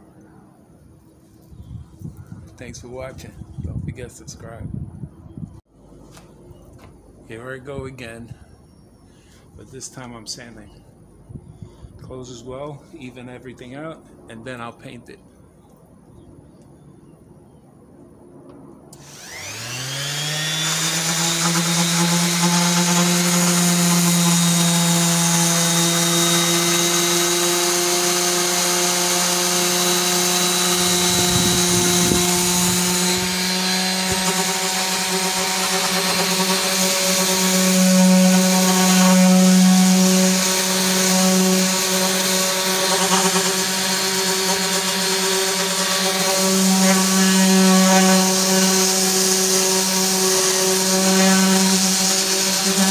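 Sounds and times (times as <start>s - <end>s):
orbit sander motor whine: 18.9s - 52.9s.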